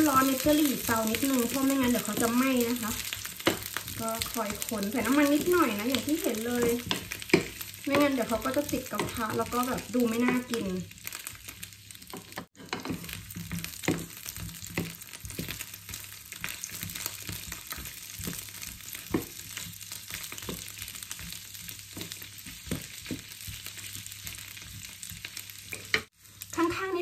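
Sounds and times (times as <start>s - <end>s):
wooden spatula scraping a pan: 0.0s - 26.1s
sausages sizzling in a frying pan: 0.0s - 27.0s.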